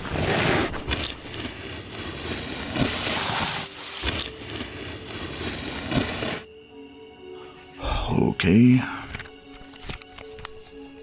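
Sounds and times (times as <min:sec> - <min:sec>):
salt pouring onto ground: 0:02.0 - 0:06.4.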